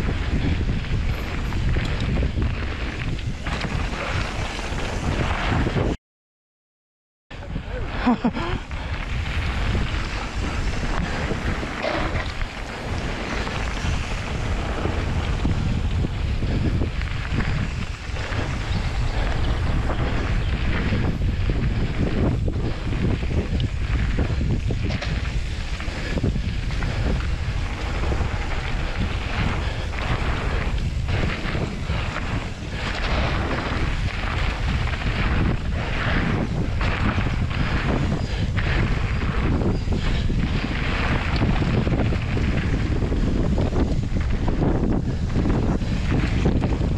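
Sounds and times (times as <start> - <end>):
bike knocking and rattling: 0.0 - 5.8, 8.2 - 46.9
tyres rumbling over dirt: 0.0 - 5.9, 7.5 - 46.9
wind buffeting microphone: 0.0 - 6.0, 7.3 - 46.9.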